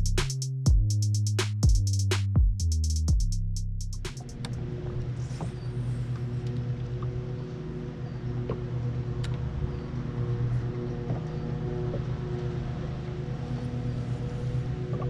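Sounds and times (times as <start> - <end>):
boat motor humming: 4.0 - 15.0.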